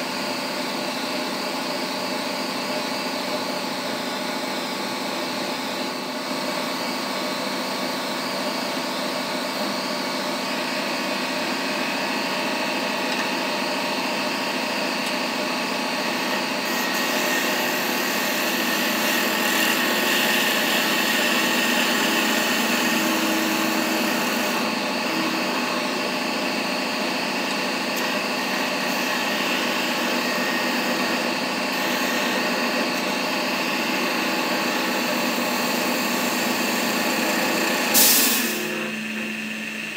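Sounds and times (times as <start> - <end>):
wood lathe humming: 10.4 - 39.9
chisel cutting spinning wood: 14.8 - 39.9.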